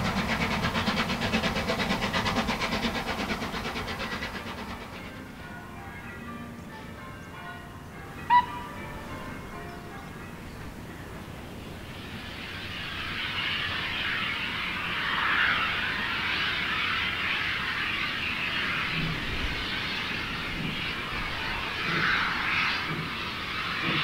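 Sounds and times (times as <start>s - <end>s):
distant steam locomotive hissing: 0.0s - 24.0s.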